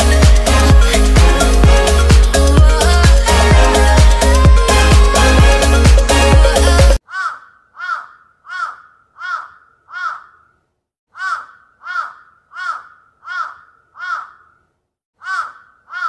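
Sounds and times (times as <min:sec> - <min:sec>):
crow cawing: 0:07.0 - 0:14.6, 0:15.2 - 0:16.0.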